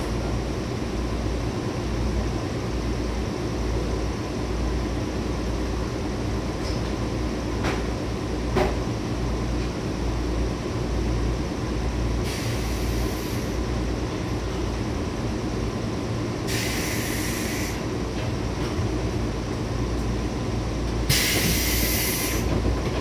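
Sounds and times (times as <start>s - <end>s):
train running rumble inside car: 0.0s - 23.0s
short bursts of hiss: 16.5s - 17.8s, 21.1s - 22.4s.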